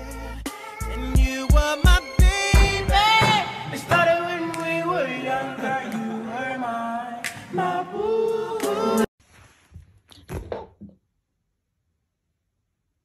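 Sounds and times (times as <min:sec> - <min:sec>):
several voices singing: 0:00.0 - 0:09.1.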